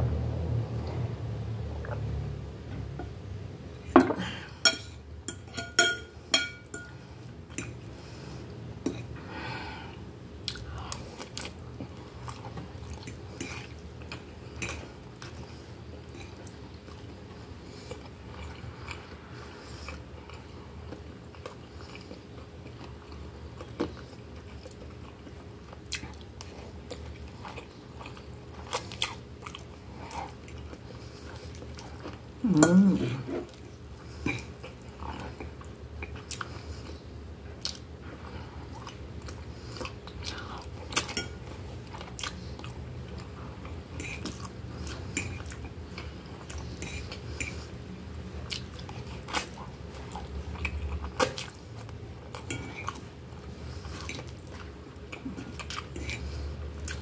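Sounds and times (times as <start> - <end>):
fork clinking on glass plate: 4.0 - 6.9
person chewing: 10.4 - 57.0.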